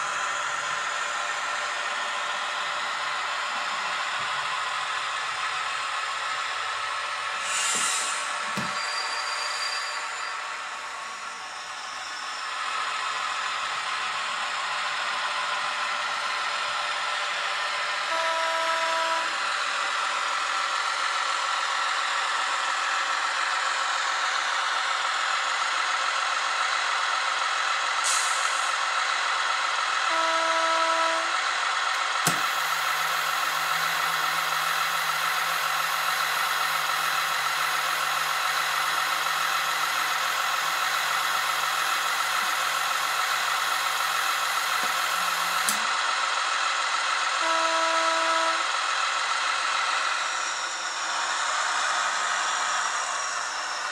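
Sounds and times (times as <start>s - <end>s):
hissing diesel engine: 0.0s - 53.9s
locomotive horn toots: 18.0s - 19.4s, 30.0s - 31.4s, 47.4s - 48.7s
click: 45.6s - 45.9s.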